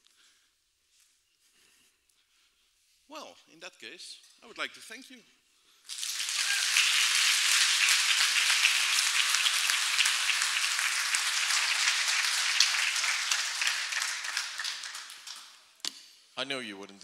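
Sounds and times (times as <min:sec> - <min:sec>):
audience applauding: 0:05.9 - 0:15.7.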